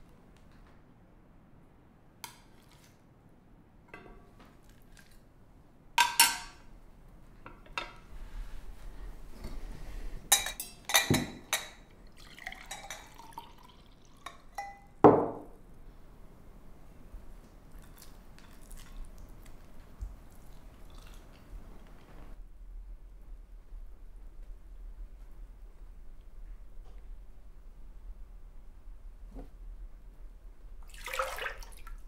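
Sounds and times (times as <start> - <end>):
cutlery clinking on plates: 6.0 - 6.6.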